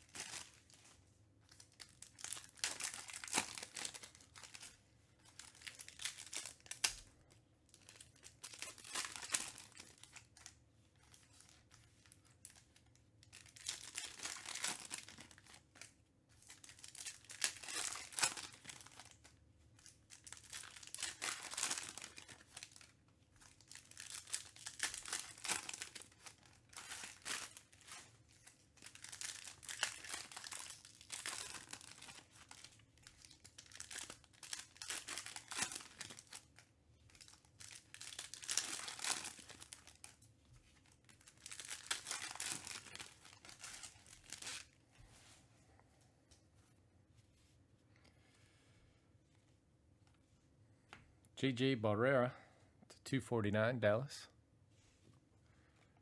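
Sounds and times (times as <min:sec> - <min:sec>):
foil packs tearing and crinkling: 0:01.7 - 0:04.7, 0:05.3 - 0:07.0, 0:07.7 - 0:12.6, 0:13.2 - 0:15.9, 0:16.5 - 0:19.2, 0:19.8 - 0:40.1, 0:40.8 - 0:44.8.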